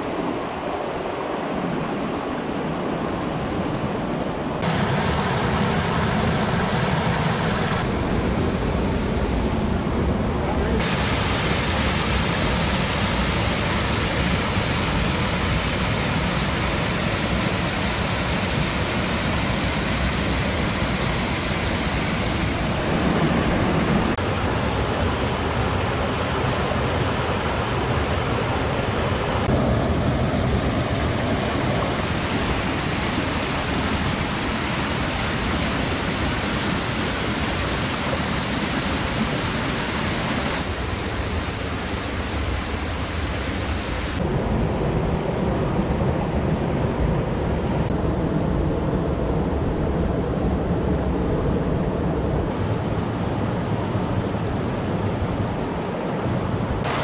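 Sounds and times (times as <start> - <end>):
river water rushing over rocks: 4.6 - 7.9, 10.8 - 44.2, 52.6 - 57.0.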